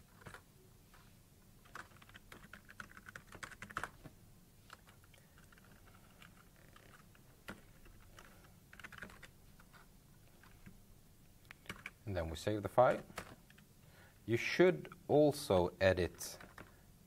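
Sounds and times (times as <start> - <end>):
faint keyboard typing: 0.0 - 10.8, 11.4 - 12.1, 12.9 - 13.7, 16.1 - 16.8.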